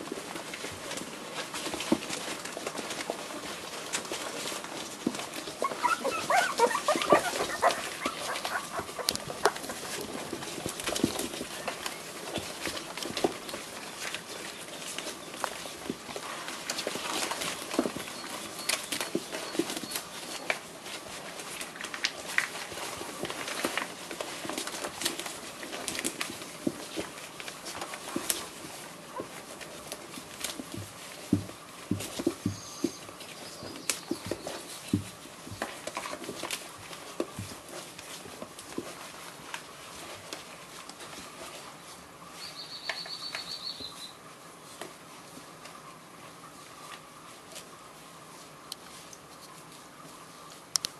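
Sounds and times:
newspaper rustling: 0:00.0 - 0:42.6
puppies squeaking and grunting: 0:04.7 - 0:11.5.

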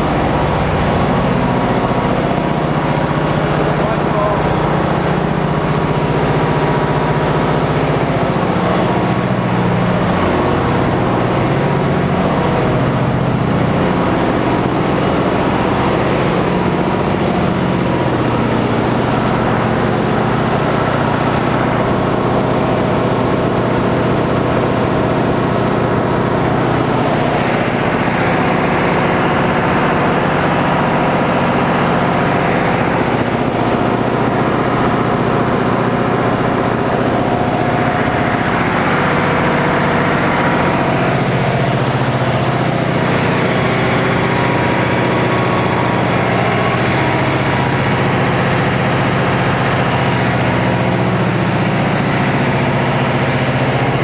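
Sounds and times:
diesel generators droning: 0:00.0 - 0:54.0.

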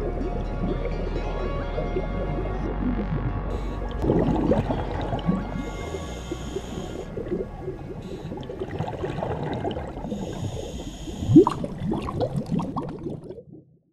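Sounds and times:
bubbles gurgling underwater: 0:00.0 - 0:13.8
regulator hissing: 0:05.6 - 0:07.2.

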